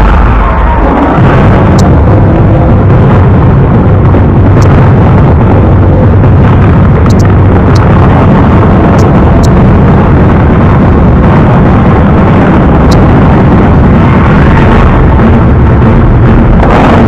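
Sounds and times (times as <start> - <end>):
faint clicks: 7.0 - 7.9.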